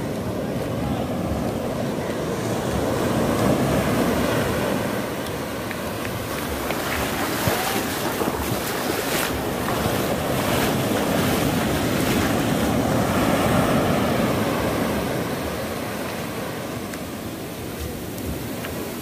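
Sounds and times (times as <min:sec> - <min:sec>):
foamy wash running over sand: 0:00.0 - 0:19.0
small surf breaking: 0:02.7 - 0:17.0.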